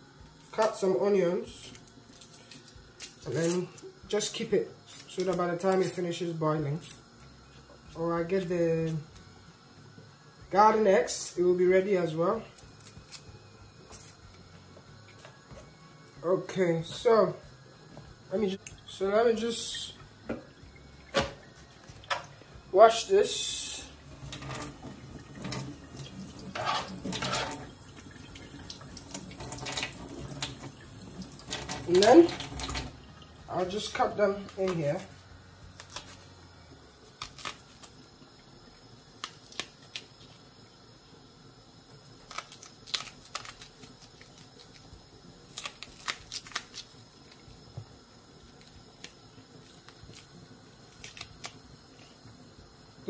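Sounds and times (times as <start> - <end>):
splashing under running water: 24.3 - 33.2.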